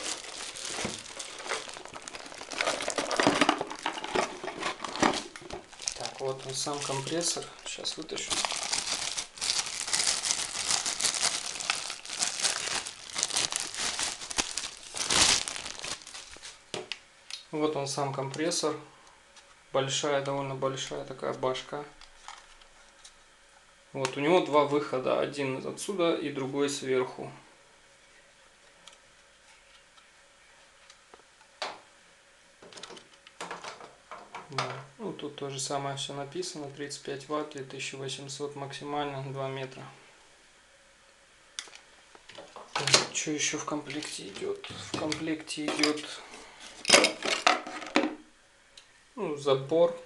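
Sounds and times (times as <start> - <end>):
packaging crinkling and rustling: 0.0 - 16.9.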